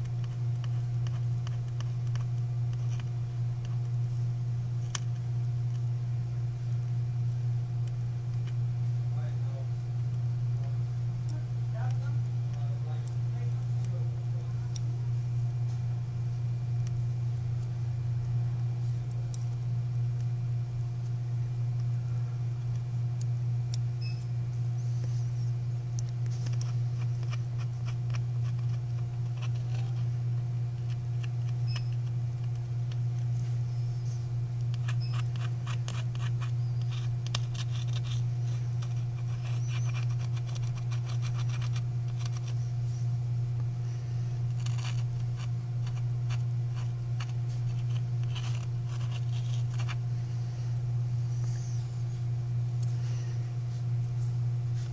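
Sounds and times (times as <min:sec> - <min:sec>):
low hum: 0:00.0 - 0:54.9
tweezers scratching and ticking: 0:00.1 - 0:03.9, 0:26.0 - 0:42.8, 0:44.3 - 0:50.0.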